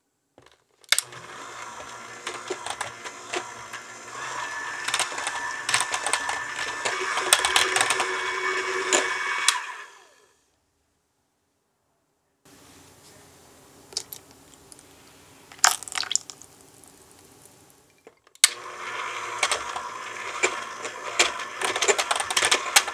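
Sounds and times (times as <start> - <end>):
electric hand mixer whirring: 1.0 - 10.4, 18.4 - 22.9.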